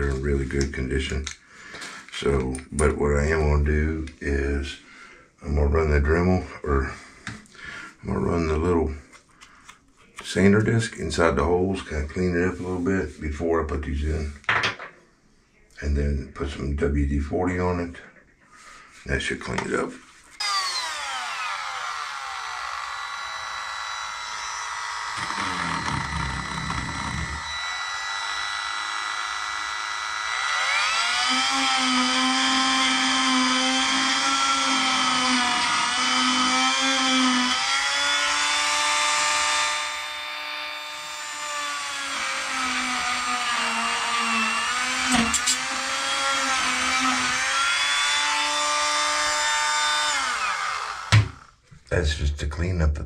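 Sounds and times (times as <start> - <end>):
rotary tool whining: 20.3 - 51.6
sharp knock: 51.1 - 51.4.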